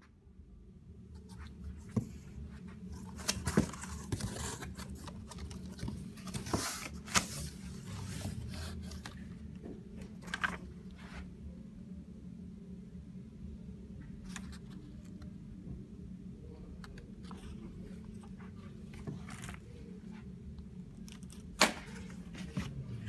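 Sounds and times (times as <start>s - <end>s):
low steady hum: 0.0s - 23.0s
cardboard and paper rustling: 1.2s - 11.3s, 17.2s - 20.3s, 21.0s - 23.0s.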